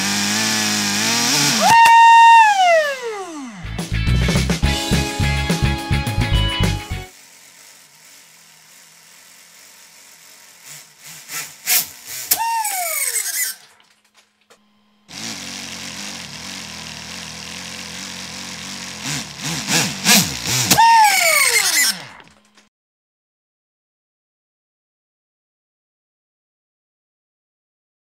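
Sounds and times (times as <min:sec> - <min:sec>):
motor whine falling in pitch: 0:01.0 - 0:04.3, 0:11.5 - 0:13.6, 0:14.6 - 0:22.7
model engine clattering and knocking: 0:15.2 - 0:22.6.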